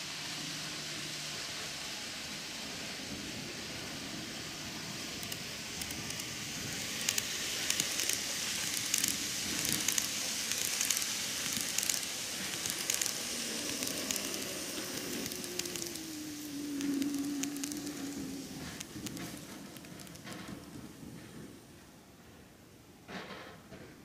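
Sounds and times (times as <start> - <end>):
model train rolling on track: 0.0 - 23.8
wheels clicking over rail joints: 5.1 - 21.6.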